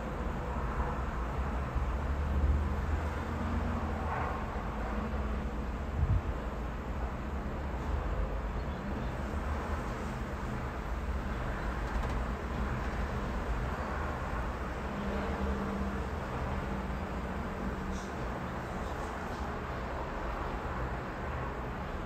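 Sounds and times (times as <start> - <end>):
city traffic: 0.0 - 22.0
wind gusting against microphone: 5.6 - 7.0.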